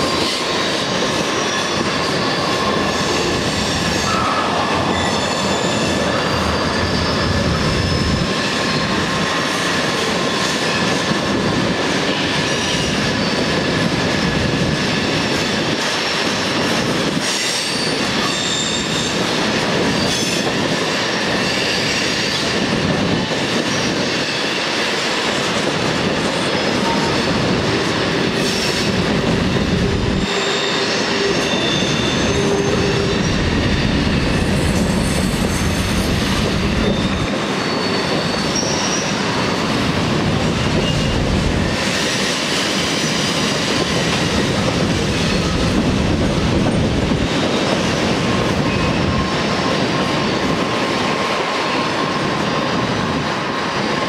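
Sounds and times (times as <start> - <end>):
train wheels rumbling on rail: 0.0 - 54.0
high-pitched wheel squeal: 3.9 - 8.2, 17.6 - 19.2, 30.2 - 33.4, 36.7 - 39.2.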